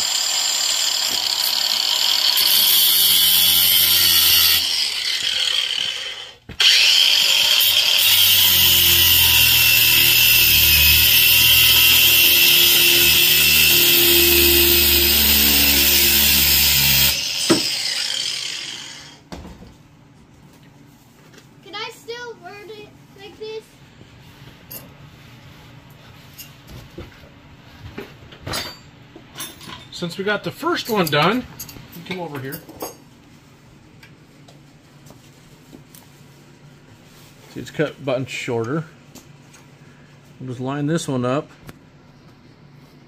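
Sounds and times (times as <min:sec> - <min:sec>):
angle grinder cutting metal: 0:00.0 - 0:19.2.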